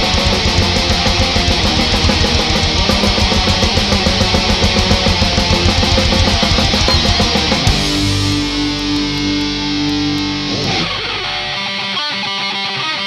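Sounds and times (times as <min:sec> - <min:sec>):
fast drumming: 0:00.0 - 0:09.6
distorted electric guitars: 0:00.0 - 0:13.0.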